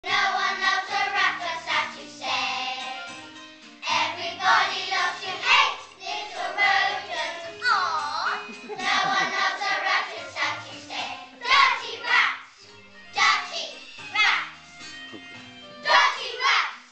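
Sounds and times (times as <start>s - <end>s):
children singing together: 0.0s - 3.2s, 3.8s - 12.5s
musical accompaniment: 0.1s - 16.9s.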